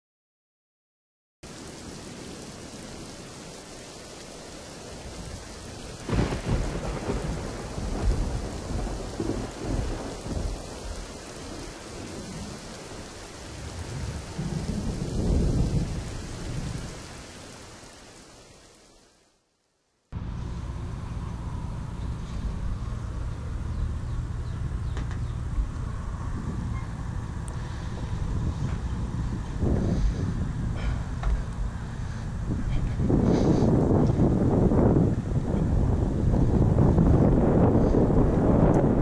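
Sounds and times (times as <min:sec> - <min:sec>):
rain falling: 0:01.4 - 0:39.0
rolling thunder rumbles: 0:01.5 - 0:18.0, 0:20.2 - 0:39.0
thunder crack: 0:06.0 - 0:12.8, 0:13.5 - 0:16.9, 0:32.5 - 0:39.0.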